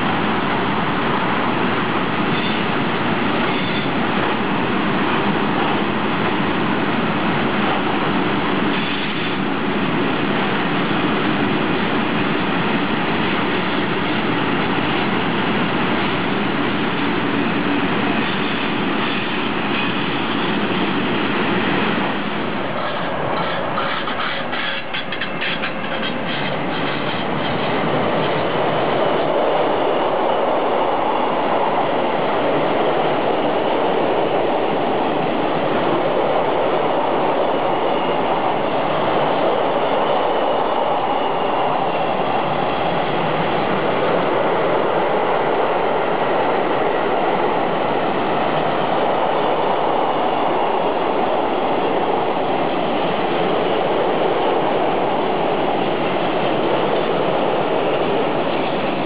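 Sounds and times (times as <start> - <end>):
train wheels running on rails: 0.0 - 59.0
high-pitched wheel squeal: 3.5 - 3.9, 22.8 - 27.6.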